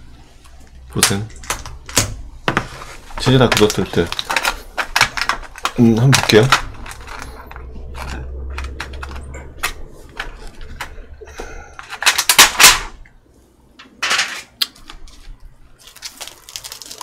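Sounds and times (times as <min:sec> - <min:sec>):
plastic cover crinkling: 0:02.6 - 0:11.1, 0:14.6 - 0:17.0.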